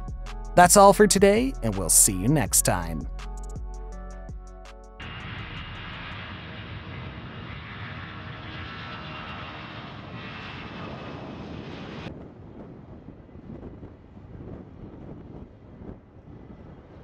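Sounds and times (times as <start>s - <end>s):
short music: 0.6s - 3.2s
jet engines running: 5.0s - 12.2s.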